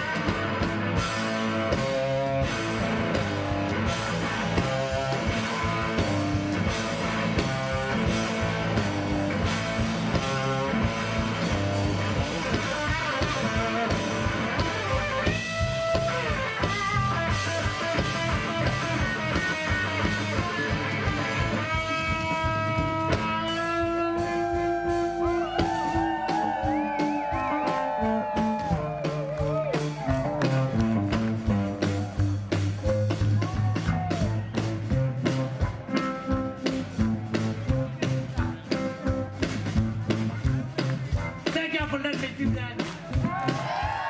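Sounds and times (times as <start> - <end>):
electric guitar solo: 0.0 - 32.3
drum kit: 0.0 - 44.0.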